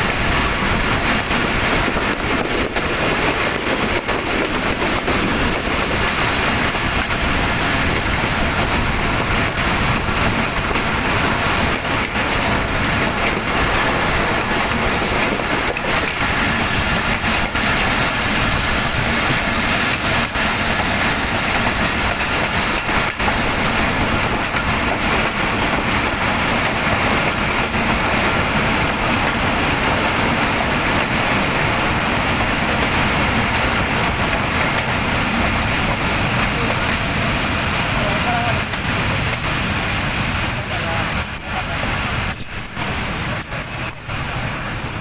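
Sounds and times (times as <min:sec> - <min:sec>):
train wheels rushing on rails: 0:00.0 - 0:45.0.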